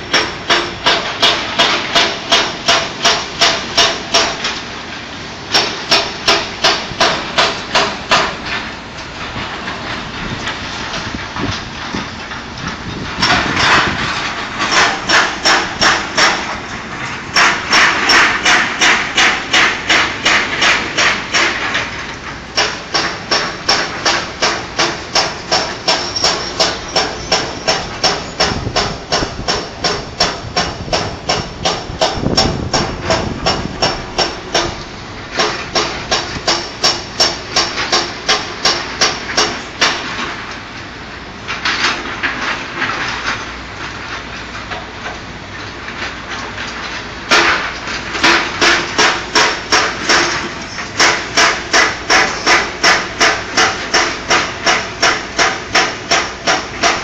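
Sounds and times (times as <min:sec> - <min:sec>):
rock breaker hammering: 0:00.0 - 0:04.6, 0:05.5 - 0:08.5, 0:12.8 - 0:40.2, 0:47.3 - 0:57.0.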